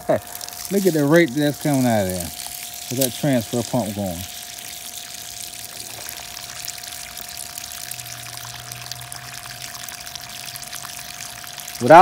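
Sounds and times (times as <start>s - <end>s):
water splashing onto gravel: 0.0s - 12.0s.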